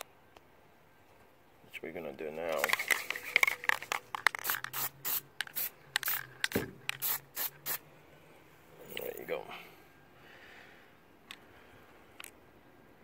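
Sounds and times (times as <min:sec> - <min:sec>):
aerosol can spraying spurts: 0:02.5 - 0:07.8.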